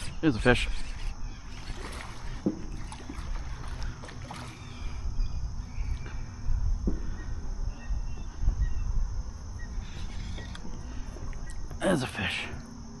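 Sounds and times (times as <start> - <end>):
canoe creaks: 0.0 - 5.1, 9.8 - 10.9
wind buffeting microphone: 0.0 - 11.8.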